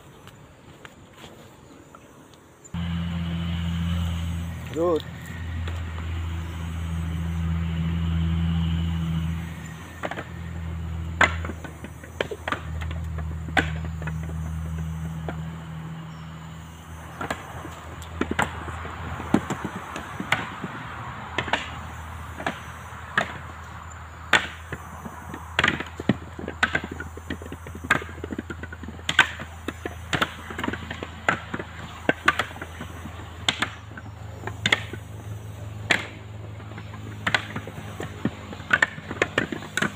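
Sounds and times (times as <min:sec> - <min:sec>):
low engine hum: 0:02.7 - 0:39.9
coconuts knocking together: 0:24.3 - 0:35.1, 0:35.8 - 0:39.9.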